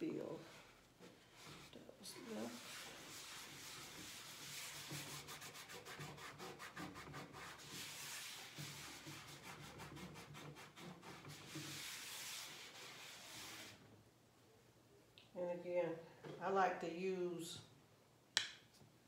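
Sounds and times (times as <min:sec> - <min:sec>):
cloth rubbing on tabletop: 0:00.0 - 0:13.8.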